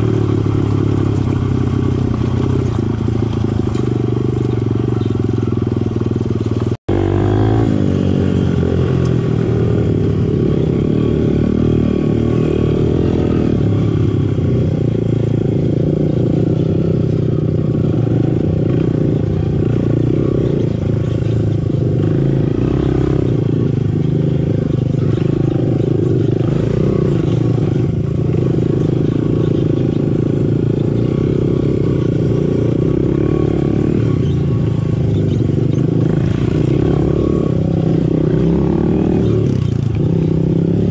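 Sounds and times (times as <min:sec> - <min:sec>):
dirt bike engine running: 0:00.0 - 0:40.9.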